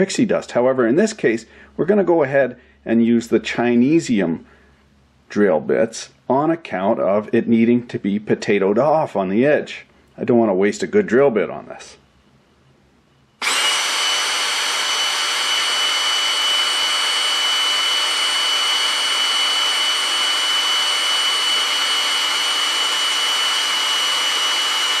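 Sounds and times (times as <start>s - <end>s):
drill boring through potato: 13.4s - 25.0s
power drill whining: 13.4s - 25.0s.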